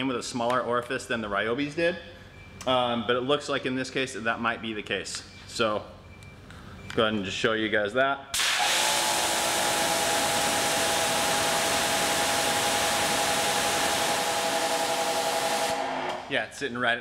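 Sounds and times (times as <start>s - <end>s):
pressure washer water jet hissing: 8.4s - 16.3s
pressure washer whine: 8.4s - 16.3s.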